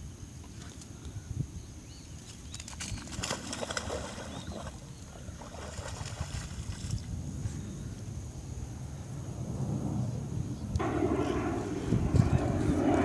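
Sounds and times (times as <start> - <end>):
dog splashing through water: 2.6 - 7.1.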